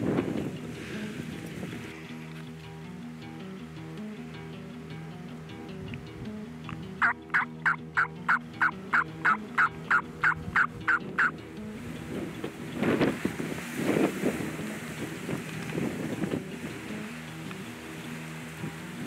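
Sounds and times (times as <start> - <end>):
wind gusting on microphone: 0.0 - 2.1, 10.0 - 19.0
turkey yelps: 7.0 - 11.3.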